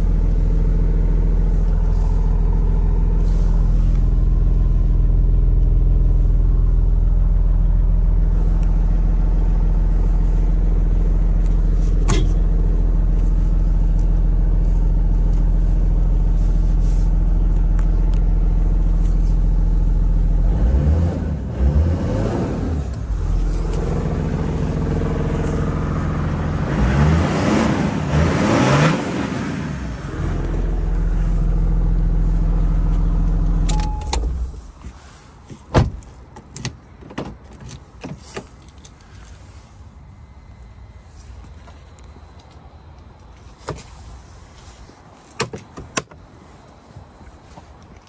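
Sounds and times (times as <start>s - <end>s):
diesel engine idling: 0.0s - 20.5s, 23.0s - 26.8s, 29.3s - 35.3s.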